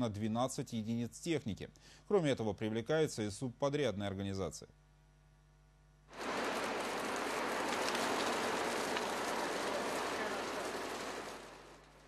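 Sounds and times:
hot asphalt pouring: 6.1s - 12.0s.

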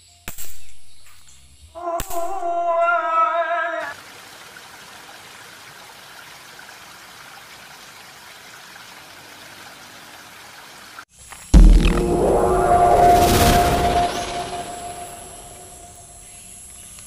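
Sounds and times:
outdoor ambience hiss: 3.8s - 17.0s
loud burst of music: 11.6s - 16.0s.

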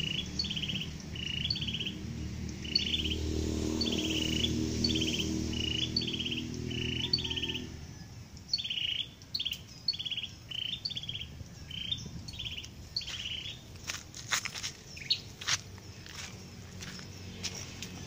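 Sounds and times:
low droning hum: 0.0s - 8.6s
songbird calling with buzzy trill: 0.0s - 14.0s, 14.6s - 17.3s.

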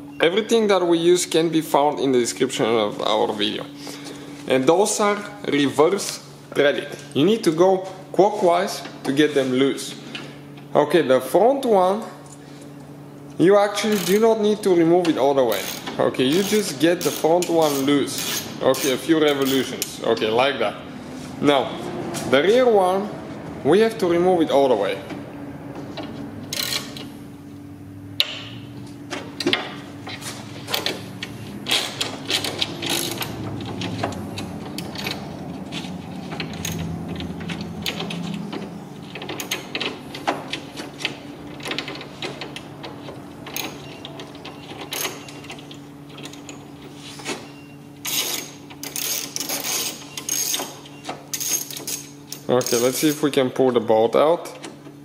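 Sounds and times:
steady low hum: 0.0s - 55.0s
hand driver clicking and rattling: 30.7s - 46.6s.

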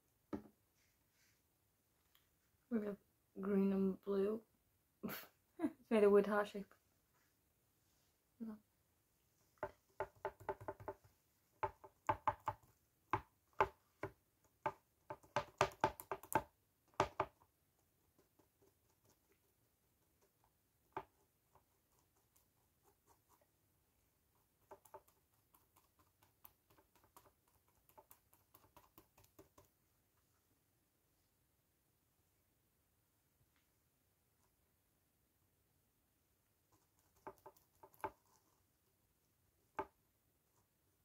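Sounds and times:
sponge tapping on phone case: 9.6s - 12.6s, 13.2s - 17.4s.

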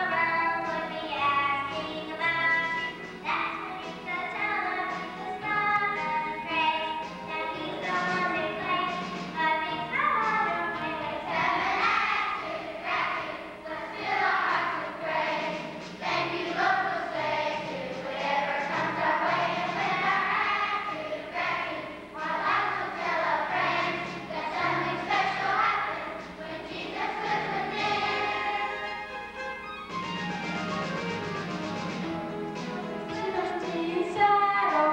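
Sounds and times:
children's choir singing: 0.0s - 29.2s, 32.6s - 34.9s
instrumental accompaniment: 13.6s - 34.9s.

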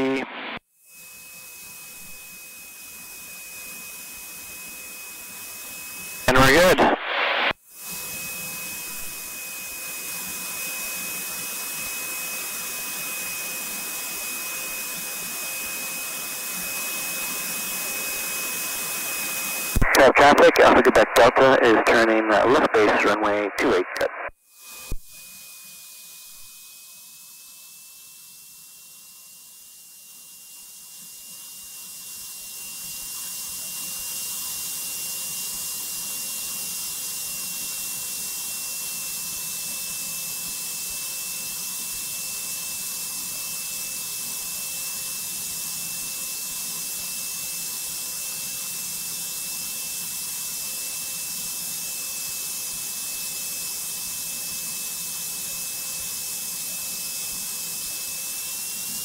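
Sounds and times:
thin high whine: 0.0s - 2.5s, 15.1s - 27.0s
plane engine and airflow hiss: 16.2s - 24.2s.

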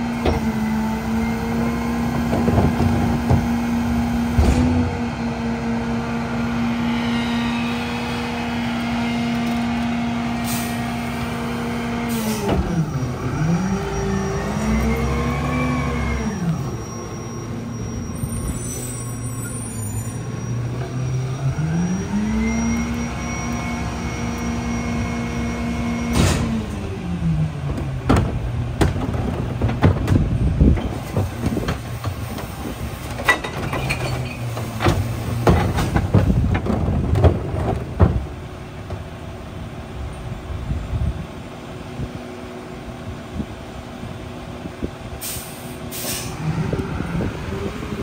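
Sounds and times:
garbage truck diesel engine revving: 0.0s - 40.1s, 45.3s - 48.0s
knocks and bangs of trash handling: 27.7s - 32.3s, 34.7s - 38.4s.

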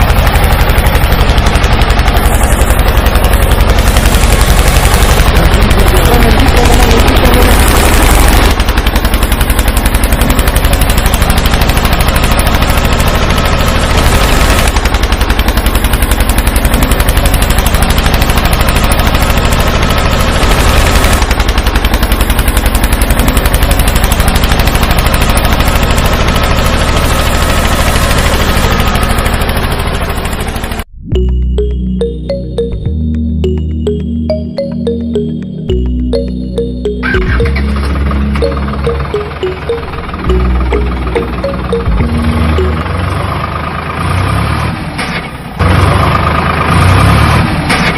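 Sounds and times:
small motor rapid clatter: 0.0s - 30.9s, 44.0s - 47.9s.

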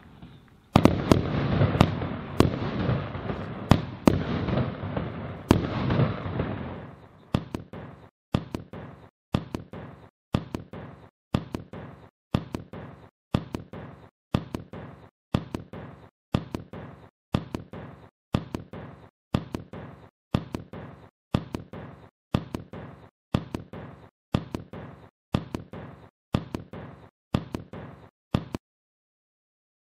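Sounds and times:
firework bursting and crackling: 0.0s - 9.0s.

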